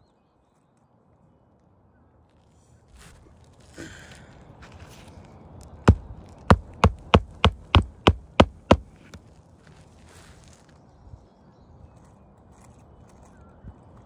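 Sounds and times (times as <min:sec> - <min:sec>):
hammer striking nail into shingle: 0:05.8 - 0:09.2
brief rustle: 0:09.0 - 0:10.8.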